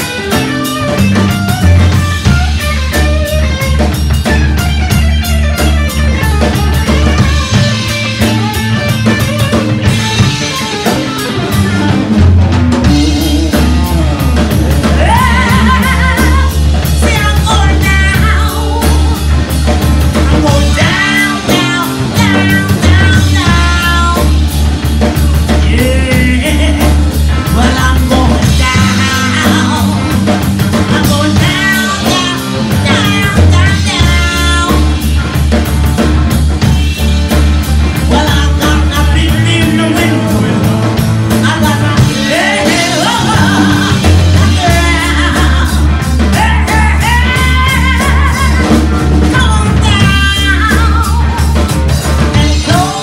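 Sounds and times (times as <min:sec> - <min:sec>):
drum kit: 0:00.0 - 0:53.0
electric bass line: 0:00.0 - 0:53.0
electric guitar: 0:00.0 - 0:53.0
woman singing: 0:12.8 - 0:24.6, 0:25.4 - 0:35.2, 0:38.0 - 0:53.0.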